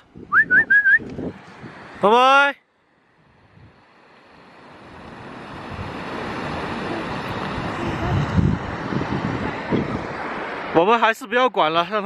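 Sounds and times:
wind rumble on microphone: 0.0 - 2.0, 3.2 - 3.9, 4.8 - 10.7
rushing river water: 0.0 - 12.0.

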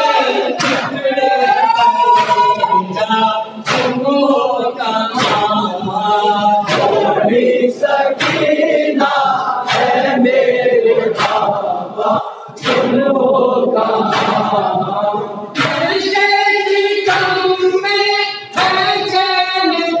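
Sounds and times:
men chanting through a microphone: 0.0 - 20.0
sharp chest slaps: 0.6 - 0.9, 9.7 - 10.0.

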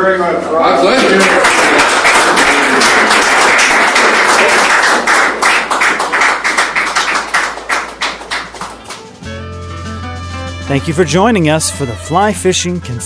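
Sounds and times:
audience applauding: 0.8 - 9.2.

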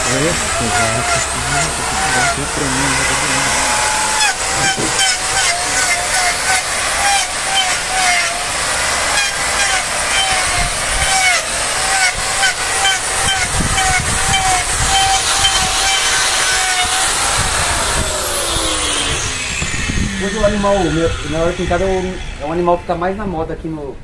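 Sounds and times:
angle grinder whining: 0.0 - 23.5.

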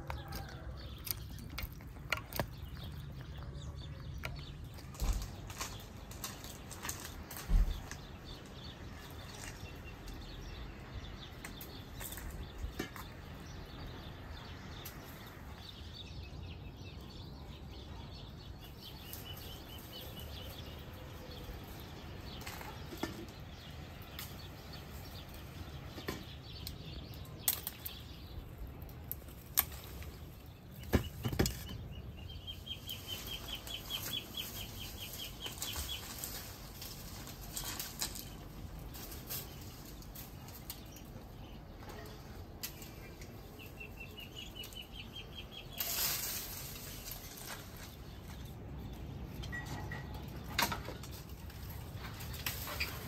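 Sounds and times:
twigs snapping: 0.0 - 10.2, 26.6 - 31.8, 32.8 - 41.2
birds chirping: 0.0 - 53.0
leaves and branches rustling: 0.0 - 53.0.

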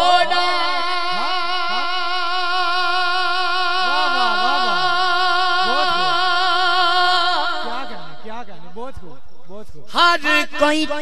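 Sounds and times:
man singing long note with vibrato: 0.0 - 8.4.

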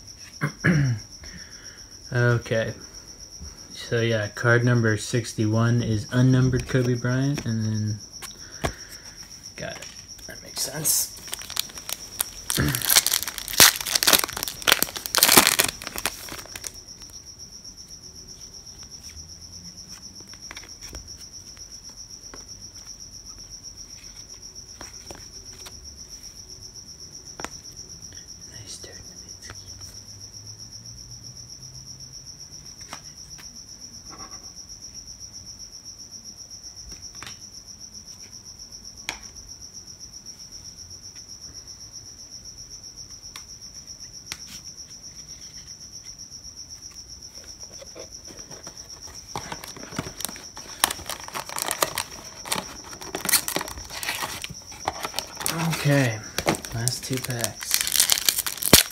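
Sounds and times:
cricket chirping: 0.0 - 58.9
foil card pack crinkling: 10.6 - 17.1, 47.4 - 58.9.

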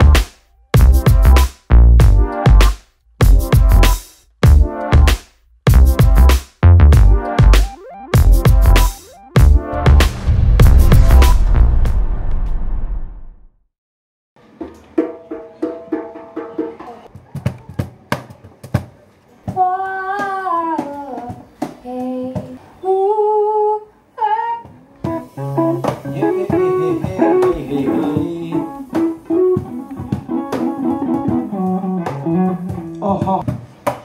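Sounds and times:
person singing: 26.1 - 33.4.

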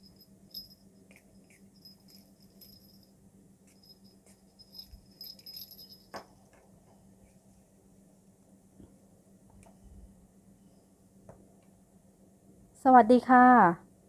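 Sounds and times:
small jingle bells tinkling: 0.0 - 6.4
steady low hum: 0.0 - 12.9.

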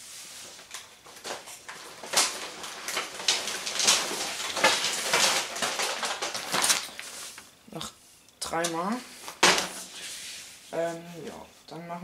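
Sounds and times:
plastic wrapping crinkling: 0.2 - 7.6.

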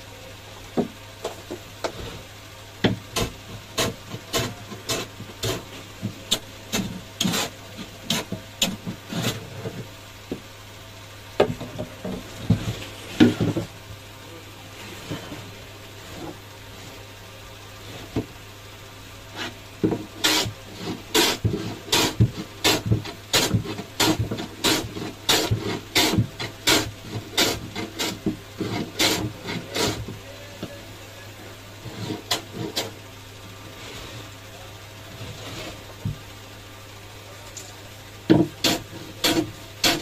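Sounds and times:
hand plane rasping on wood: 3.2 - 5.7, 6.7 - 9.6, 19.3 - 30.1, 31.8 - 32.9, 38.3 - 40.0.

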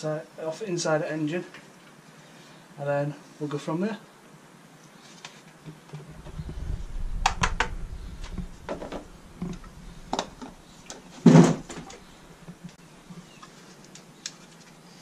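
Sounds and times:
low rumble: 6.1 - 12.7.

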